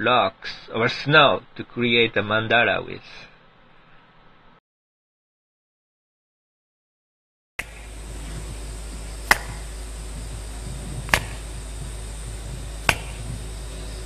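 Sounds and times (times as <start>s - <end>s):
steady low hum: 7.6s - 14.0s
sharp percussive strikes: 9.2s - 9.7s, 12.8s - 13.2s.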